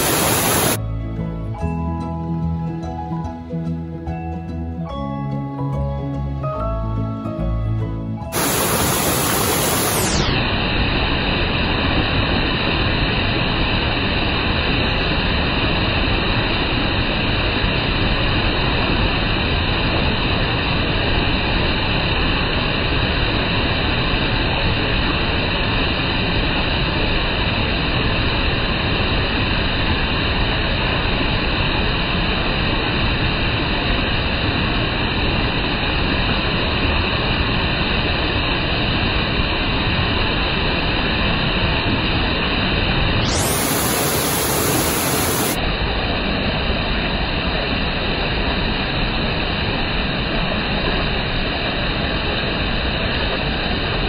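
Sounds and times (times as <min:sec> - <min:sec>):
waterfall rushing: 0:00.0 - 0:00.8, 0:08.3 - 0:10.3, 0:43.2 - 0:45.8.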